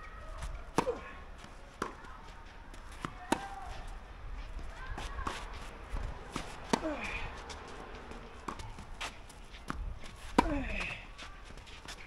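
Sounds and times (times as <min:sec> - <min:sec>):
tennis ball bounces: 0:00.4 - 0:12.0
far-court hits: 0:00.5 - 0:01.2, 0:01.8 - 0:02.2, 0:02.8 - 0:03.9, 0:04.9 - 0:11.2
racket striking tennis ball: 0:00.7 - 0:01.2, 0:01.8 - 0:02.1, 0:02.8 - 0:03.9, 0:06.2 - 0:07.3, 0:08.2 - 0:11.1.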